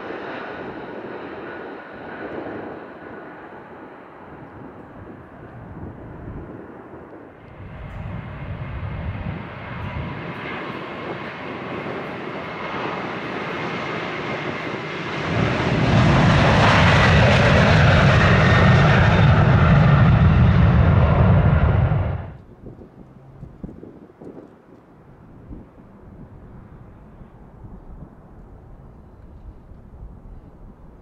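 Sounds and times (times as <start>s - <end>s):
jet airliner engines: 0.0s - 31.0s
deep rumble: 7.5s - 10.6s, 15.1s - 23.8s.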